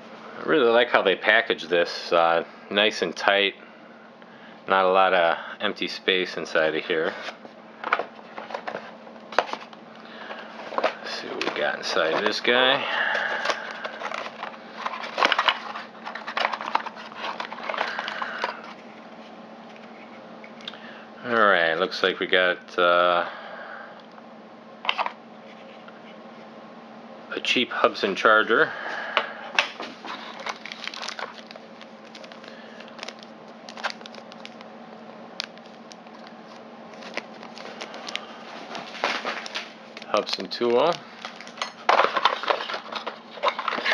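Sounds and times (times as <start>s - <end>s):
faint steady hum: 0.0s - 43.9s
plastic and cardboard crinkling: 7.0s - 20.2s, 29.6s - 34.7s, 35.4s - 43.9s.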